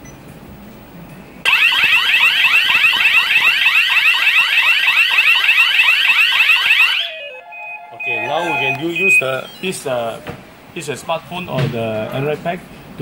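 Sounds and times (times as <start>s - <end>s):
alarm siren whooping: 1.5s - 10.1s.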